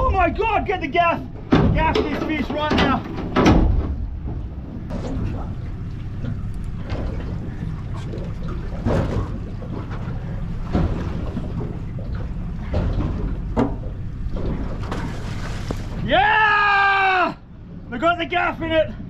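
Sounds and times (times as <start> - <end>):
boat engine rumble: 0.0 - 19.0
water splashes: 1.2 - 16.2
sharp knocks: 1.5 - 5.2.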